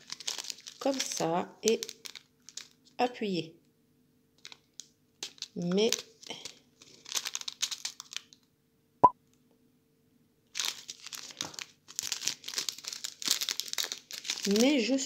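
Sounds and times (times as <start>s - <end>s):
plastic bag crinkling: 0.0s - 2.9s, 4.4s - 8.4s, 10.5s - 15.0s.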